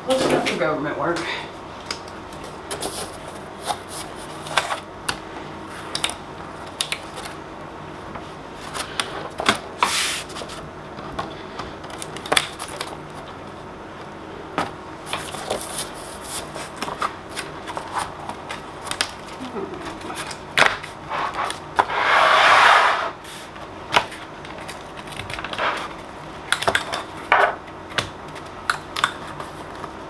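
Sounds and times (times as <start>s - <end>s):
cardboard scrape: 9.8s - 10.6s, 21.1s - 23.5s, 25.5s - 25.9s.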